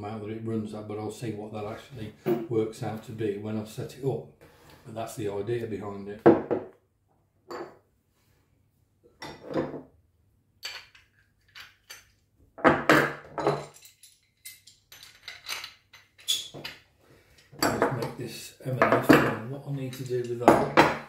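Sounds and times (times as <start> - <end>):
metal tools clinking on wood: 13.1 - 18.2, 18.8 - 21.0.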